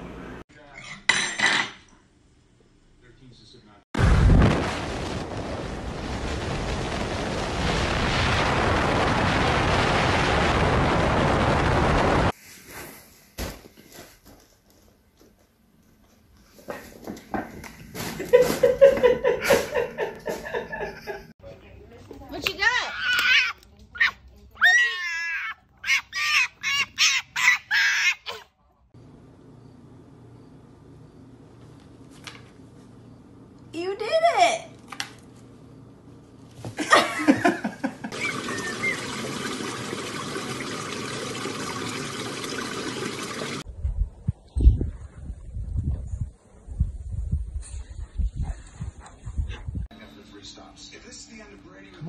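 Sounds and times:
wind buffeting microphone: 0:04.1 - 0:12.3, 0:43.6 - 0:49.9
puppy crying and yipping: 0:22.8 - 0:28.5.

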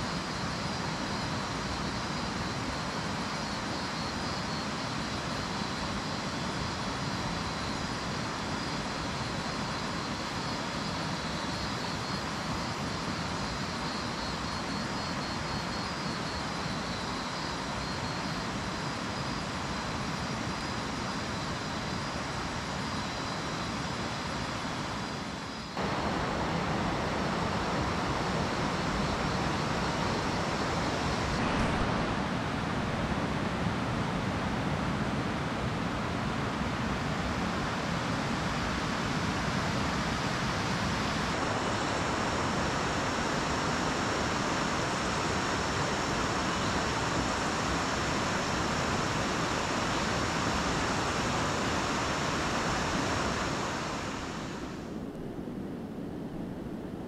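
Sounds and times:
river rushing over rocks: 0:25.8 - 0:35.0.

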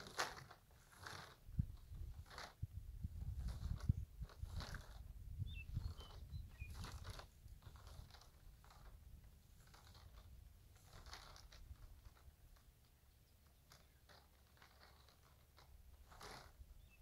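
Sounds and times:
faint crackles: 0:00.0 - 0:17.0
wind rumble on microphone: 0:01.4 - 0:12.4.

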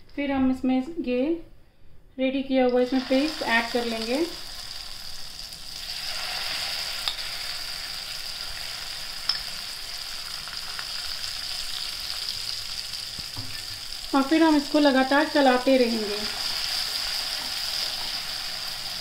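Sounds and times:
paste sizzling in hot oil: 0:02.9 - 0:14.2, 0:15.8 - 0:19.0.

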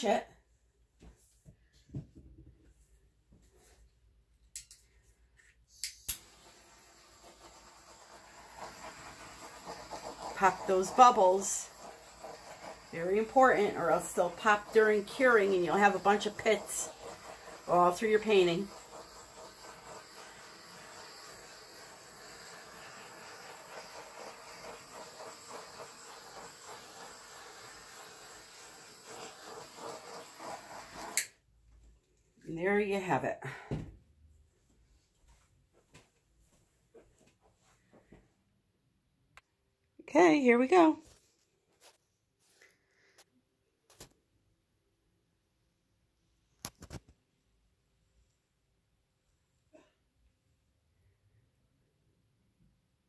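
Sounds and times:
torch click: 0:05.8 - 0:06.4
torch flame hissing: 0:06.1 - 0:31.4.

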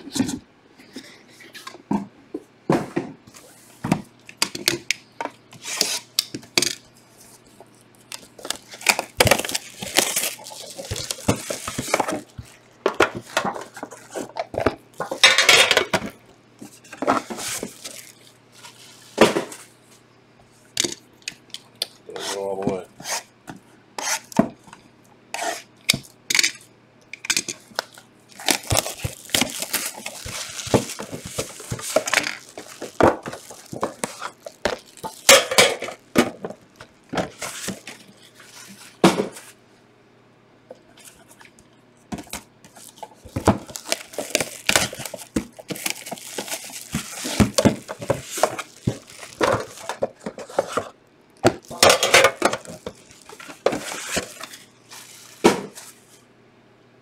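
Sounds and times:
plastic wrap crinkling: 0:06.9 - 0:15.4, 0:16.6 - 0:19.2, 0:27.4 - 0:39.0, 0:42.2 - 0:56.1
box cutter slitting plastic wrap: 0:08.4 - 0:12.1, 0:28.4 - 0:35.2, 0:43.4 - 0:49.9.

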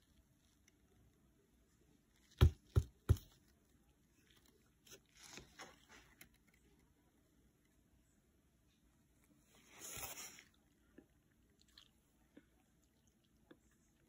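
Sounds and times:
soft scraping and scuffling: 0:04.1 - 0:06.8, 0:09.2 - 0:10.6.

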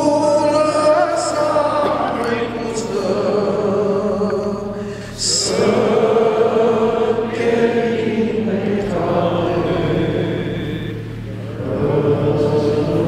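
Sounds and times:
men singing a carol: 0:00.0 - 0:13.0.

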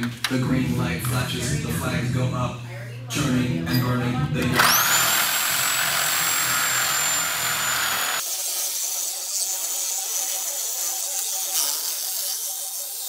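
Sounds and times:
reciprocating saw cutting metal: 0:04.6 - 0:13.0.

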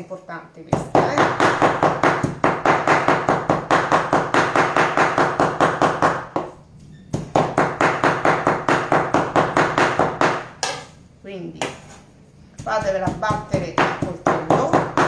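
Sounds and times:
knife chopping meat on wooden board: 0:00.8 - 0:06.5, 0:07.2 - 0:10.8, 0:12.6 - 0:15.0.

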